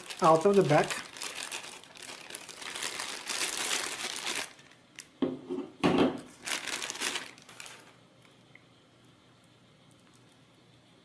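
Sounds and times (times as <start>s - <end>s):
plastic bag crinkling: 0.0s - 5.1s, 6.2s - 8.0s.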